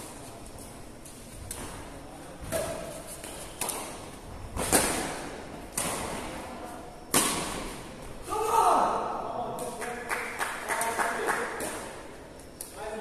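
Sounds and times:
racket hitting shuttlecock: 3.6 - 6.3, 7.1 - 7.8.

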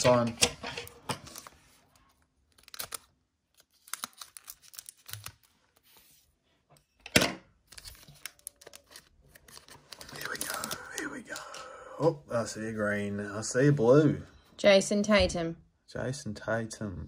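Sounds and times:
wrapper crinkling: 1.2 - 5.9, 7.7 - 11.2
wrapper ripping: 2.5 - 5.5.

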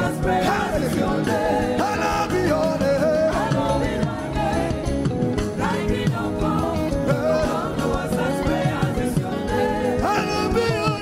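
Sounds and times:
man singing: 0.0 - 3.8, 7.0 - 11.0
backing singers: 0.0 - 11.0
gospel band playing: 0.0 - 11.0.

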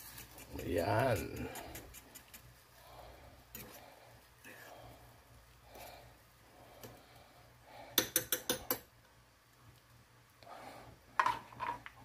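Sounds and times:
metal spoon clinking against pot: 8.0 - 8.8.

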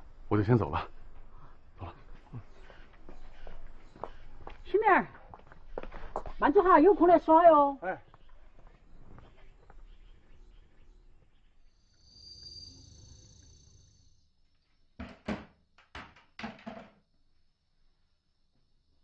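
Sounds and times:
crutches knocking and clattering: 15.0 - 17.0.

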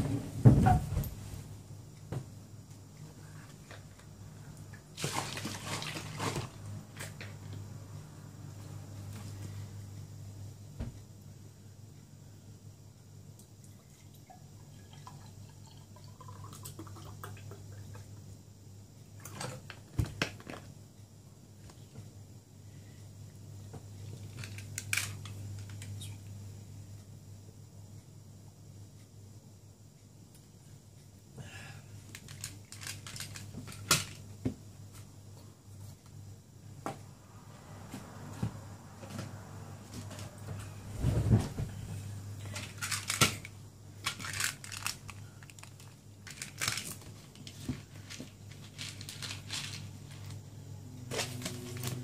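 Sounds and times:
steady low hum: 5.6 - 52.0
liquid trickling into a glass: 13.8 - 18.0.

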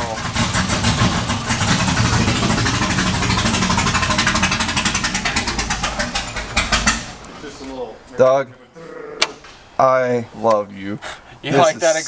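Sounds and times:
loud vee eight engine idling: 0.0 - 8.1.

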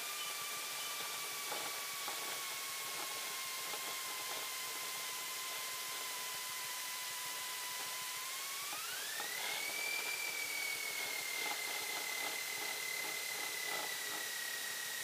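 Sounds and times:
engine whine rising in pitch: 5.5 - 15.0.

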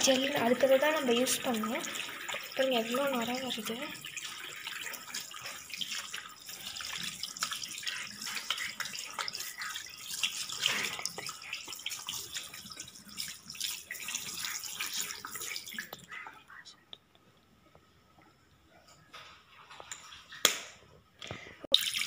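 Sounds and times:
tap water running and splashing: 0.0 - 16.2, 21.7 - 22.0.

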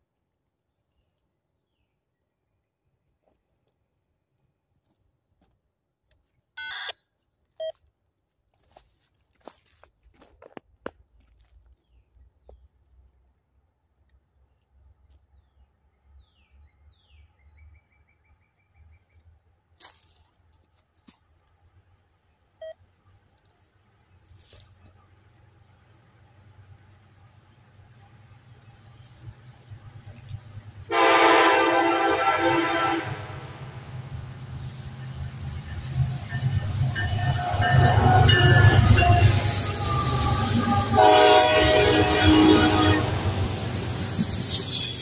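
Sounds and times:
rustling near microphone: 23.3 - 25.5
distant diesel train rumble: 24.2 - 45.0
wheels squealing on rail: 30.2 - 45.0.

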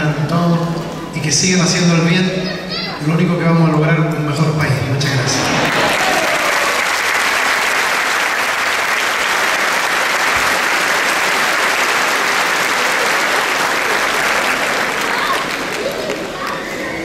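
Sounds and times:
large crowd applauding: 5.4 - 16.7.

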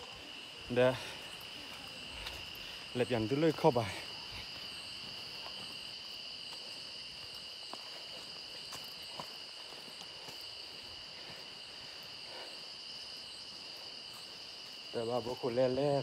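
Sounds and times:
faint footsteps: 0.0 - 15.6
insects droning: 0.0 - 16.0.

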